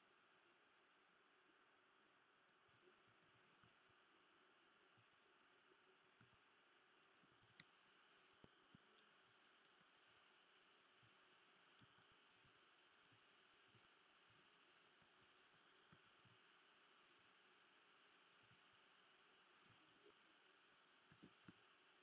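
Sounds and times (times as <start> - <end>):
mouse and keyboard clicks: 21.0 - 21.6.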